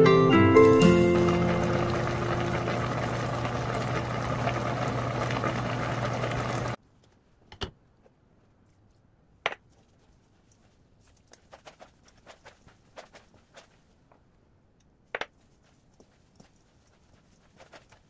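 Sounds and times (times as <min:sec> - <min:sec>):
pot boiling and bubbling: 0:00.6 - 0:06.8
low hum: 0:00.8 - 0:06.8.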